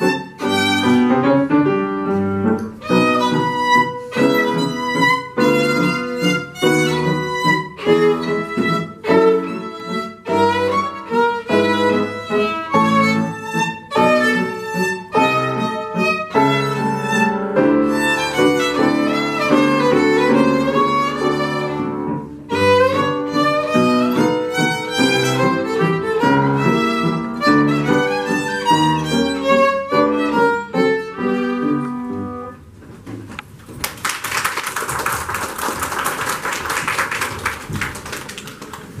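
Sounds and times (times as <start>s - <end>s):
violin melody: 0.0s - 32.6s
piano accompaniment: 0.0s - 34.0s.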